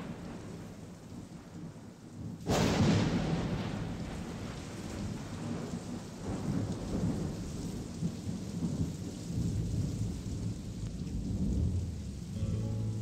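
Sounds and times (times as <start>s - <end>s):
rain hiss: 0.0s - 13.0s
thunder rumbling: 0.0s - 13.0s.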